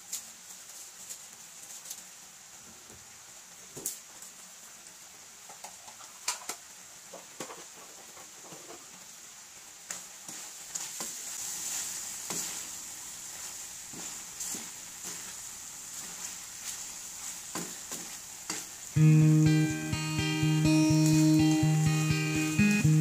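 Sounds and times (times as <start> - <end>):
sauce sizzling in a wok: 0.0 - 23.0
wooden spatula scraping a pan: 10.3 - 18.8.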